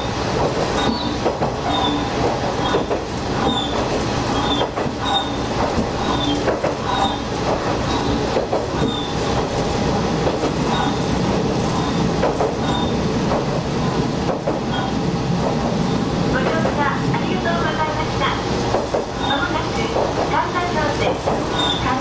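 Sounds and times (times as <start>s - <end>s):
railcar engine rumble: 0.0s - 22.0s
short high squeaks: 0.8s - 2.9s, 4.4s - 5.4s, 6.0s - 7.2s, 8.8s - 9.2s, 10.7s - 11.1s, 12.6s - 13.0s, 19.2s - 19.5s, 21.5s - 21.9s.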